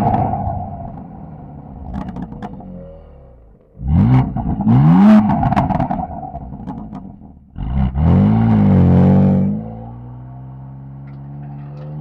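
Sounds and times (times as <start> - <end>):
exhaust crackles and pops: 0.0 - 7.9
car engine revving: 0.0 - 12.0.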